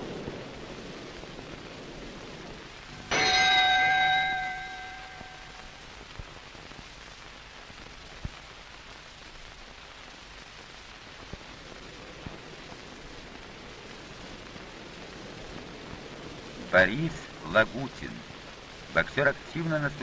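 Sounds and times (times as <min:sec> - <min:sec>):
film soundtrack hiss: 0:00.0 - 0:20.0
bell ringing: 0:03.0 - 0:05.8.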